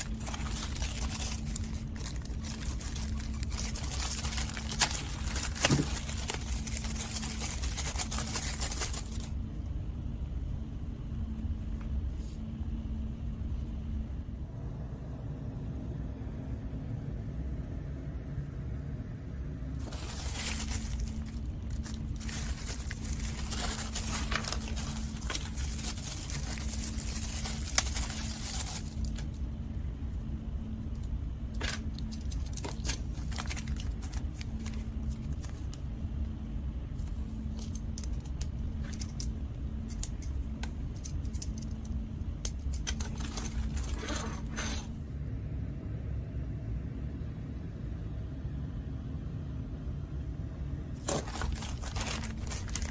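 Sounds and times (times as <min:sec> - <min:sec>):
plastic bags crinkling and tearing: 0:00.0 - 0:09.4, 0:19.8 - 0:29.4, 0:31.6 - 0:35.8, 0:42.5 - 0:44.0, 0:51.0 - 0:52.9
steady low hum: 0:00.0 - 0:52.9.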